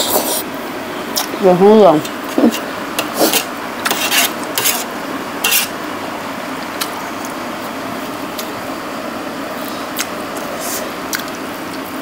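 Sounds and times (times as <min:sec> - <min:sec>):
metal spoon scraping metal tray: 0:02.5 - 0:05.8.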